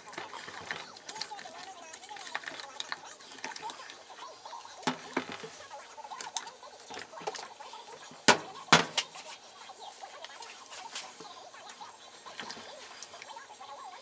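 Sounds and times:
spatula scraping plastic jug: 0:00.0 - 0:04.0.

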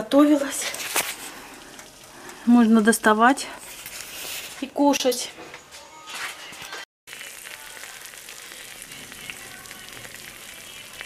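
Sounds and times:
food sizzling in baking dish: 0:00.1 - 0:04.6, 0:07.1 - 0:11.0.

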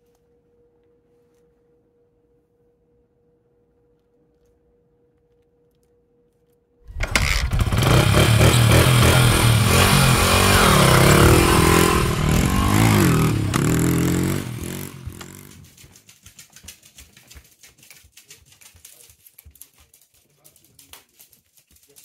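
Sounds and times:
dog claws clicking on wooden floor: 0:14.7 - 0:22.0.

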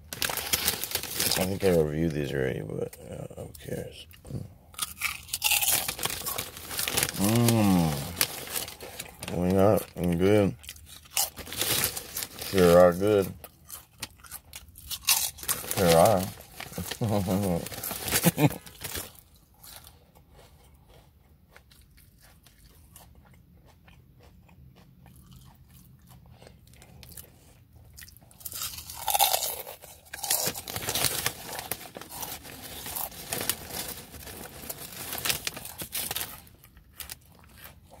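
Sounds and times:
foil chip bag crinkling: 0:00.0 - 0:02.6, 0:04.8 - 0:19.4, 0:28.4 - 0:38.0
crunching and chewing chips: 0:00.0 - 0:38.0.

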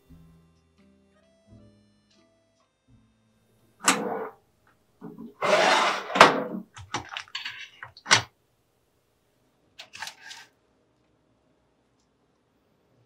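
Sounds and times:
crackling scrape of bread roll: 0:05.3 - 0:06.2, 0:09.8 - 0:10.5.

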